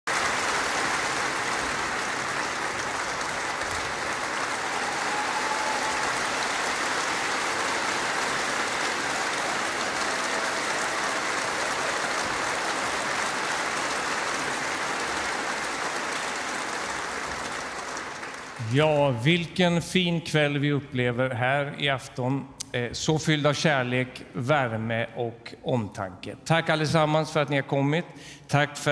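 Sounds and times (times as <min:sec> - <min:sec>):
large audience applauding: 0:00.0 - 0:19.4.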